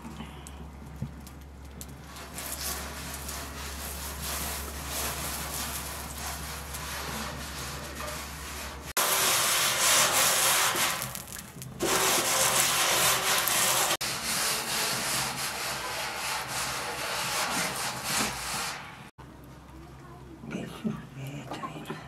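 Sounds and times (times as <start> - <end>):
bread scraping on iron griddle: 2.0 - 19.1.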